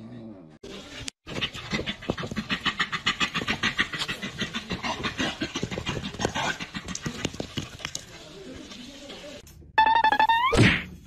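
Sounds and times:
dog panting: 0.8s - 8.0s.

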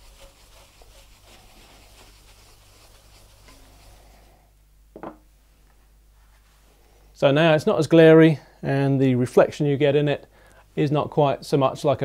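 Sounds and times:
cloth rubbing on wooden tabletop: 0.0s - 4.3s.

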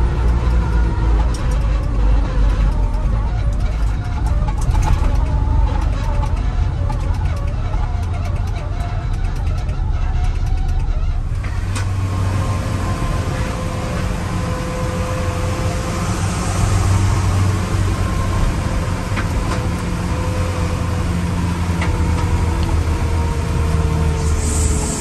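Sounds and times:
road noise: 0.0s - 25.0s
truck engine running: 0.0s - 25.0s
thin whine: 24.0s - 25.0s.

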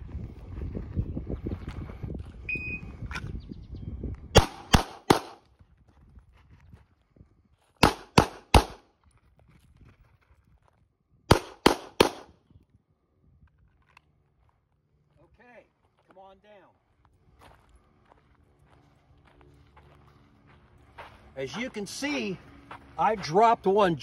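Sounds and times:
handgun shots: 4.4s - 5.4s, 7.8s - 8.8s, 11.3s - 12.3s.

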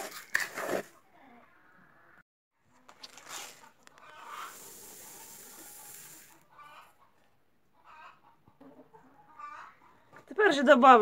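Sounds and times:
hens clucking: 3.6s - 10.3s.

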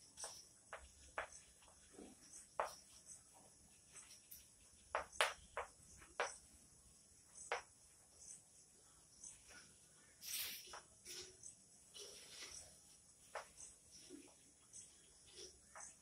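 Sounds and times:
chalk tapping and scraping on chalkboard: 0.2s - 6.5s.

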